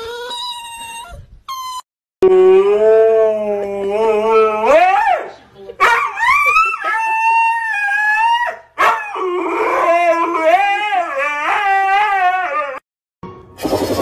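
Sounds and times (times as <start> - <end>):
husky howling: 6.1 - 12.8.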